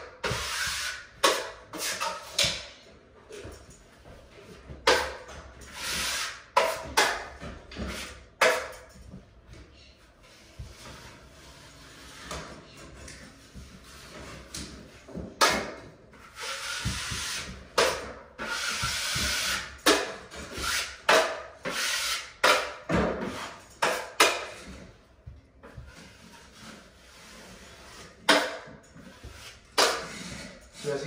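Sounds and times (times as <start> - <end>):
taping knife scraping drywall: 0.2 - 2.6, 5.0 - 8.8, 16.2 - 24.8, 25.7 - 31.0.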